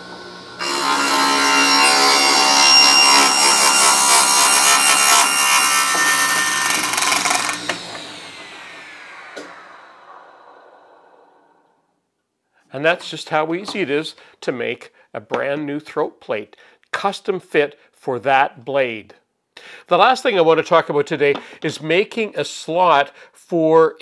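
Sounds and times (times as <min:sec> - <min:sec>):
table saw motor hum: 0:00.0 - 0:11.8
saw coasting down whine: 0:00.0 - 0:11.9
saw blade cutting wood: 0:00.6 - 0:10.4.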